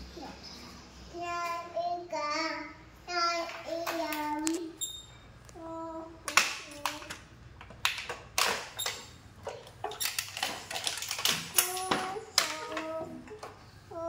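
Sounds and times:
child singing: 1.1 - 4.8, 5.6 - 7.2, 11.5 - 14.0.

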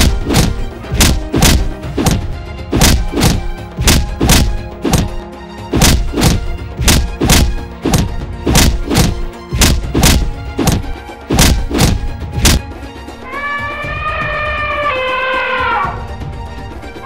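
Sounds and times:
heavy thudding footsteps: 0.0 - 12.8
background music with held tones: 0.0 - 17.0.

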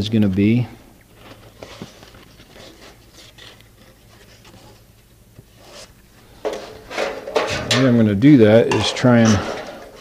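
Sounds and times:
paper rustling against metal: 5.6 - 10.0.

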